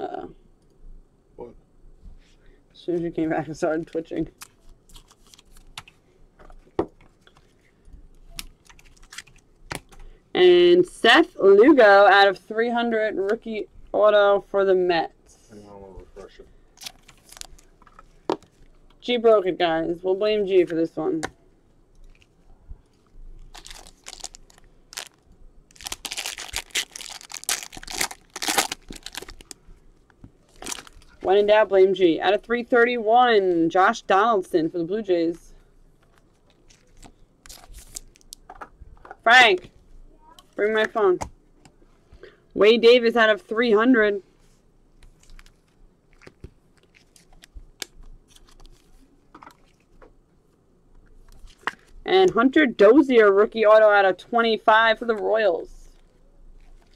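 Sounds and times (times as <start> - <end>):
plastic wrapper crinkling: 4.4 - 5.9, 8.2 - 10.0, 16.8 - 18.8, 22.0 - 31.3, 36.0 - 38.5, 45.0 - 49.9.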